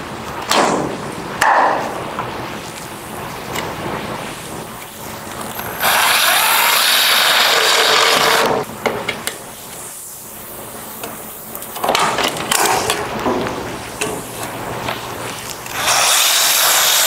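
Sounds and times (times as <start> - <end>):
cordless drill boring metal: 5.6 - 8.6, 15.7 - 17.0.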